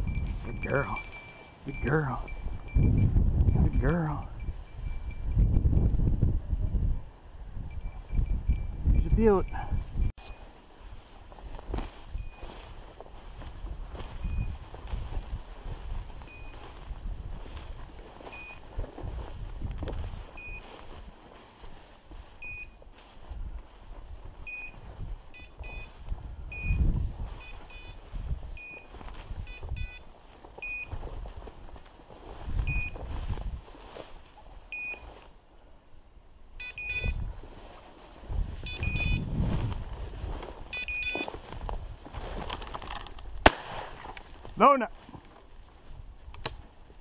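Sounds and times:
rustling through tall dry grass: 0.0 - 47.0
short high electronic beeps: 36.6 - 37.2, 38.6 - 39.2, 40.7 - 41.2.

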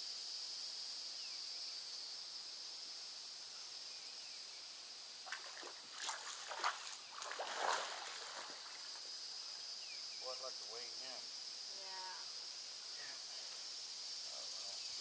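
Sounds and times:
high insect buzz: 0.0 - 15.0
water splashing and sloshing: 5.3 - 9.0.

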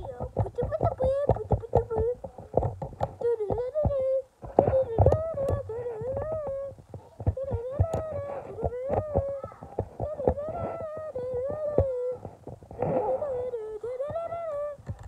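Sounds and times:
rapid clicks and knocks: 0.0 - 15.0
child humming a sliding tune: 3.2 - 14.8.

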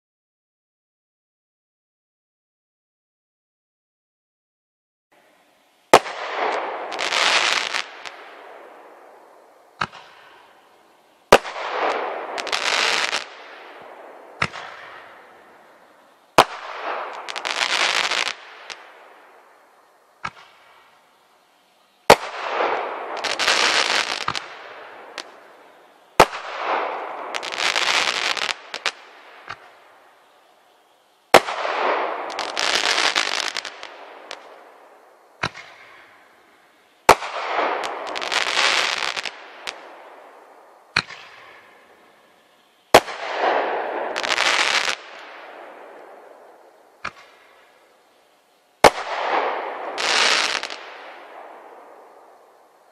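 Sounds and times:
faint single pops: 9.8 - 10.2, 20.2 - 20.8, 47.0 - 47.4.

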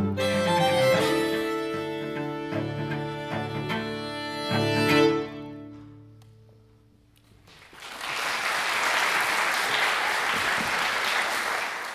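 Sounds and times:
string quartet chord: 0.0 - 6.0
audience applause: 7.5 - 11.9.

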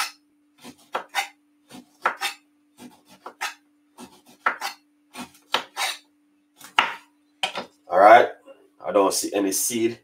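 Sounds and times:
knife cutting on wooden board: 0.0 - 6.0.

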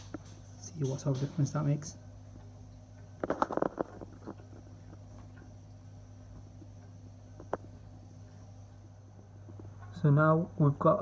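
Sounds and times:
steady low hum: 0.0 - 11.0
phone lens clicking and rattling: 3.2 - 4.6.

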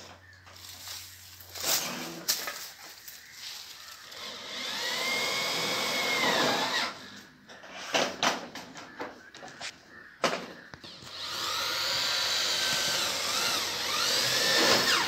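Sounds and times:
power tool whine: 4.0 - 7.2, 10.8 - 15.0.

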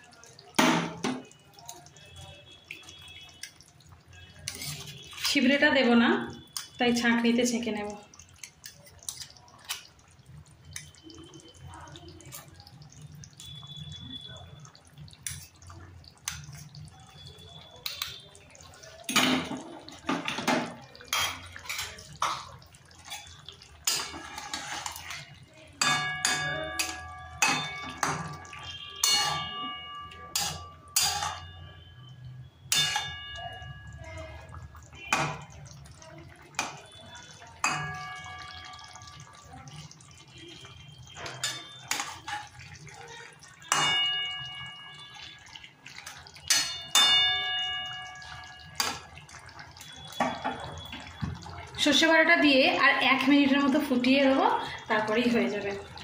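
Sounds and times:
metal spoon scraping and clinking: 4.4 - 5.5, 23.0 - 28.2, 29.0 - 31.5
spatula clinking against pan: 19.1 - 31.8, 32.7 - 35.6, 36.5 - 39.4, 41.1 - 42.8, 43.4 - 50.9.

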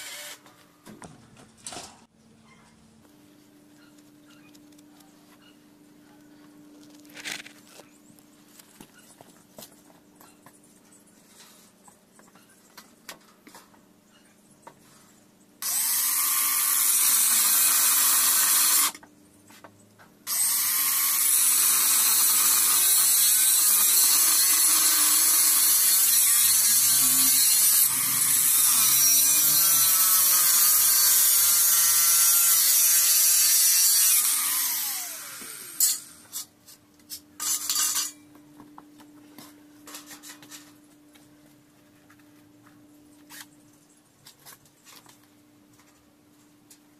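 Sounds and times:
short whirs of a drill: 0.0 - 0.4
angle grinder cutting steel: 15.6 - 19.0, 20.3 - 36.5.

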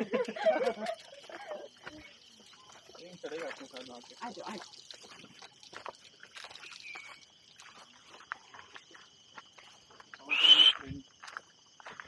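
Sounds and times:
high insect drone: 0.0 - 12.0
footsteps crunching on stony path: 4.6 - 12.0
short loud animal call: 10.3 - 10.8.

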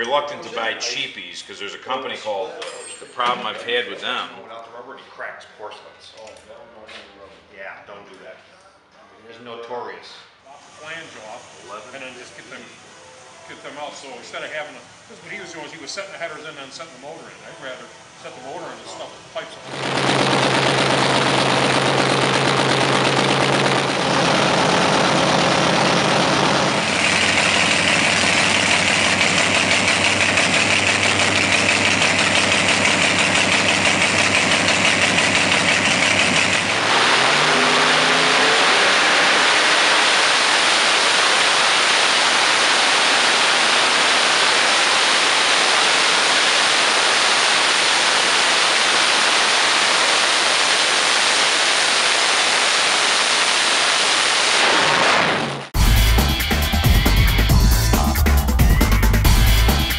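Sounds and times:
racing engine roaring on dyno: 18.2 - 59.9.

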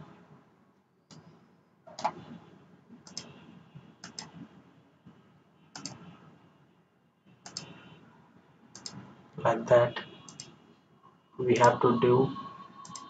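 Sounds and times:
computer mouse clicking: 1.1 - 1.3, 1.9 - 2.3, 3.0 - 3.4, 4.0 - 4.5, 5.7 - 6.2, 7.4 - 7.8, 8.7 - 9.1, 10.3 - 10.6.

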